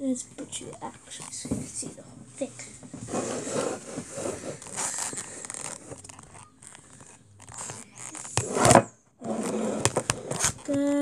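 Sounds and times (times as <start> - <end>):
scraping on wooden table: 2.9 - 6.1, 6.8 - 10.6
loud scrape or knock: 3.0 - 5.0.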